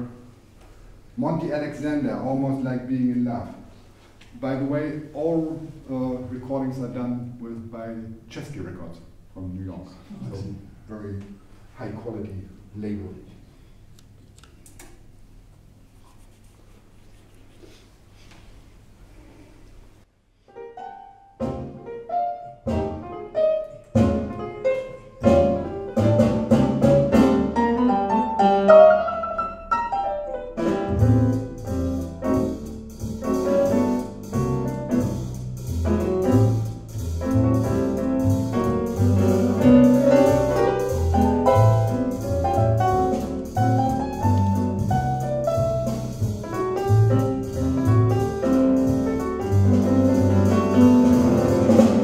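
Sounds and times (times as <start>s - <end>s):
solo jazz piano: 19.1s - 52.0s
bass line: 30.6s - 52.0s
cymbals: 30.6s - 52.0s.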